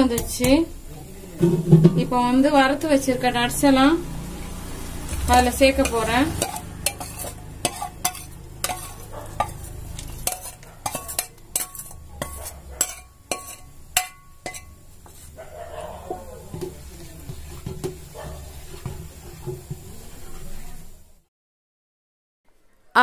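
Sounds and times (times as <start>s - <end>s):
steel ladle clinking on a bowl: 5.8s - 14.8s.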